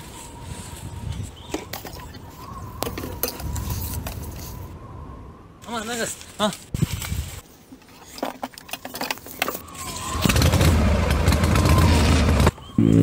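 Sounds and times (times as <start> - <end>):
small engine starting and running: 9.8 - 13.0.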